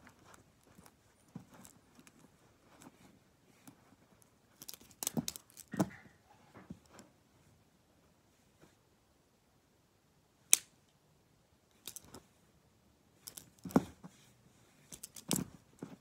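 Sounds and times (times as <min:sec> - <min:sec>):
plastic pens clicking: 0:04.6 - 0:05.8, 0:11.8 - 0:12.1, 0:14.9 - 0:15.4.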